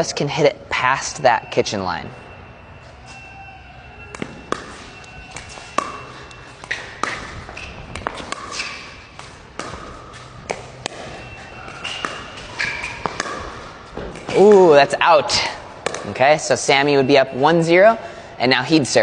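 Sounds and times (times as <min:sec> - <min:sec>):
sneaker squeaks on court: 0:04.0 - 0:14.6
paddles hitting plastic ball: 0:04.1 - 0:14.8, 0:15.8 - 0:16.2
ball bouncing on court: 0:04.1 - 0:16.4.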